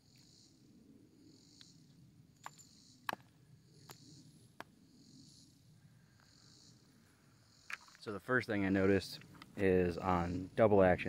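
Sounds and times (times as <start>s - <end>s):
insects chorus: 0.0s - 11.0s.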